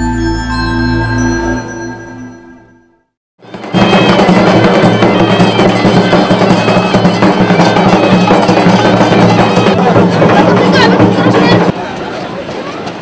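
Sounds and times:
reedy wind instrument music: 0.0 - 11.7
drums beating: 3.4 - 11.8.

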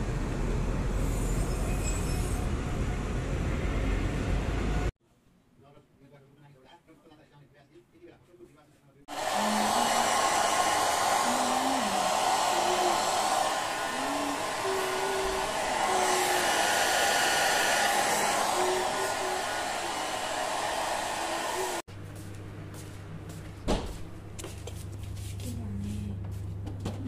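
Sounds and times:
hair dryer blowing: 9.1 - 21.9.

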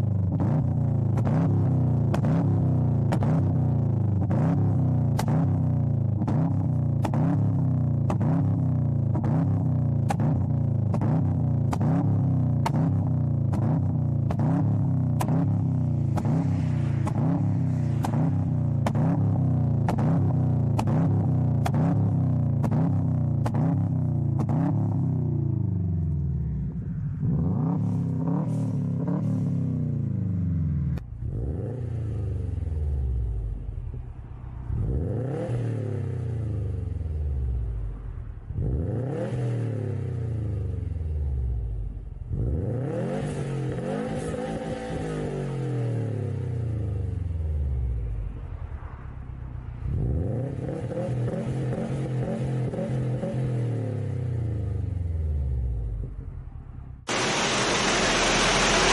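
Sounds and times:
turbocharged engine free-revving: 0.0 - 26.2, 34.6 - 48.2, 57.0 - 58.9
car engine revving: 0.0 - 58.9.

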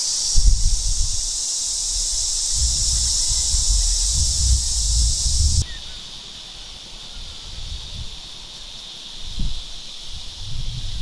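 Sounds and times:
high-pitched insect chorus: 0.0 - 11.0
low insect drone: 0.0 - 11.0
low rumbling: 2.1 - 5.6.

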